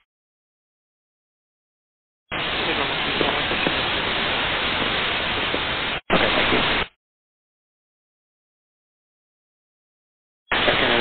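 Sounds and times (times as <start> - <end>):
radio static hiss: 2.3 - 7.0, 10.5 - 11.0.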